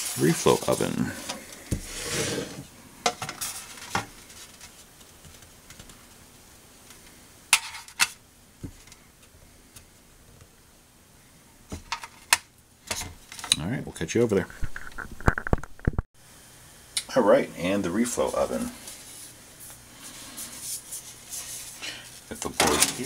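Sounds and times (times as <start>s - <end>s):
metal tray scraping on wood: 0.0s - 2.7s.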